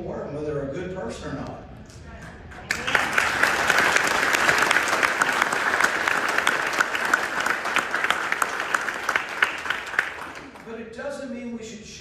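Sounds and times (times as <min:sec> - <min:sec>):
crowd applauding: 0:02.5 - 0:10.7.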